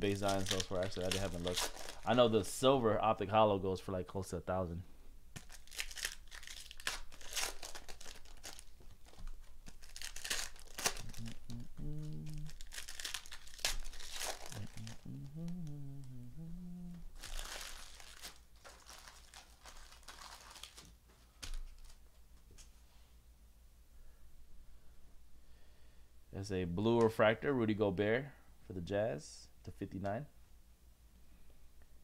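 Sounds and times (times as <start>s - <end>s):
foil wrapper crackling and tearing: 0.1s - 2.3s, 5.4s - 15.0s, 17.1s - 20.9s.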